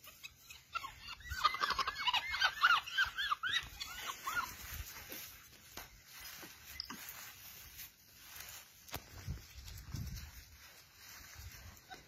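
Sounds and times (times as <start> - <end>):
monkeys squeaky calls: 0.0 - 5.3.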